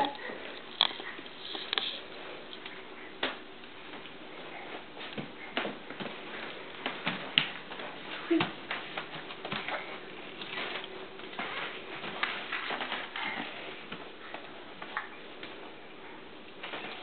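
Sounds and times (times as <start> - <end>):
footsteps on hardwood floor: 2.4 - 15.8.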